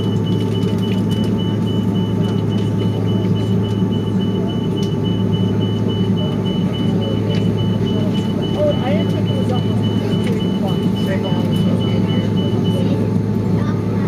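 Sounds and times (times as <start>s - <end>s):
rapid electronic beeps: 0.0s - 13.1s
aircraft cabin rumble: 0.0s - 14.0s.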